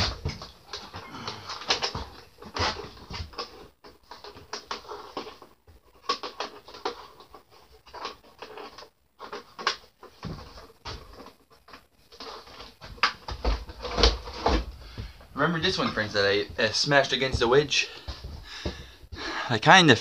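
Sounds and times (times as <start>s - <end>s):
tools knocking and scraping on shelving: 12.2s - 19.3s.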